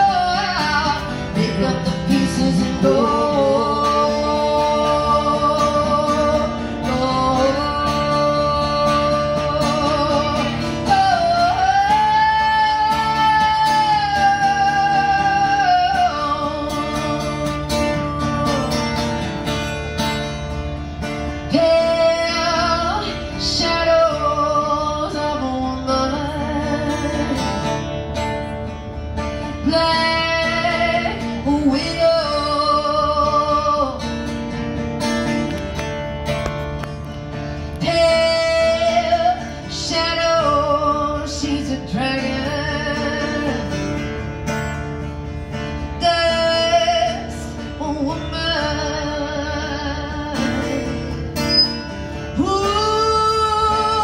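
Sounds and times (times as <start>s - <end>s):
woman singing wordless notes: 0.0s - 19.3s, 21.4s - 27.6s, 29.5s - 34.1s, 37.7s - 43.9s, 45.9s - 51.7s, 52.3s - 54.0s
guitar accompaniment: 0.0s - 54.0s.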